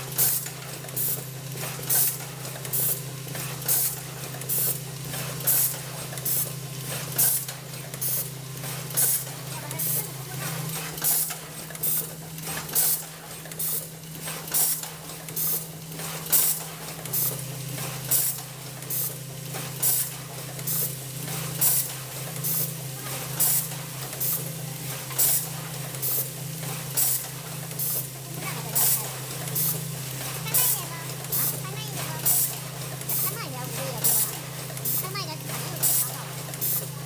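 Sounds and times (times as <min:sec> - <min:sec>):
pneumatic air hisses: 0:26.9 - 0:28.0, 0:36.6 - 0:36.9.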